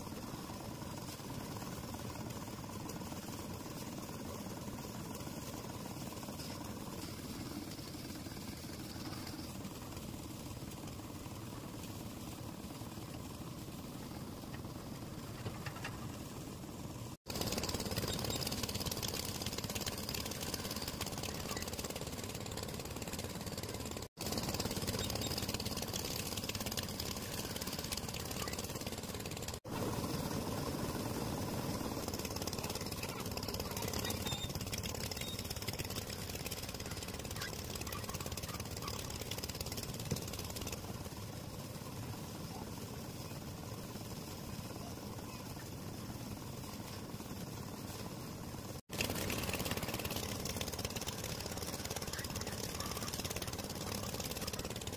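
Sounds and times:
concrete mixer rattling: 17.2s - 29.6s, 31.6s - 42.0s, 48.9s - 54.9s.

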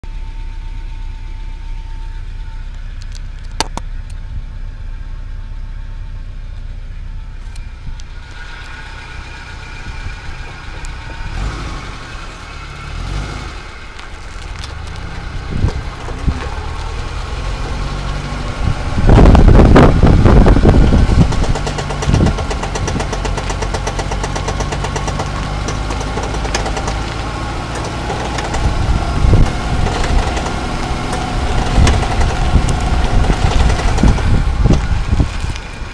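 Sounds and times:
car engine humming: 0.0s - 35.9s
knocking ticking from wheel: 15.5s - 34.9s.

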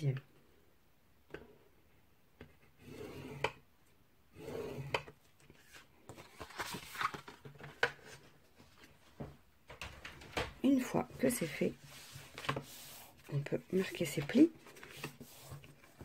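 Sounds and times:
cardstock rustling and clicking: 5.6s - 8.9s.

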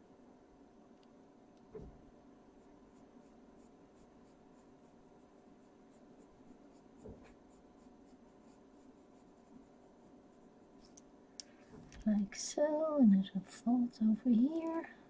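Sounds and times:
soft thump: 1.7s - 2.0s
coloured pencil scratching on paper: 2.5s - 10.9s.

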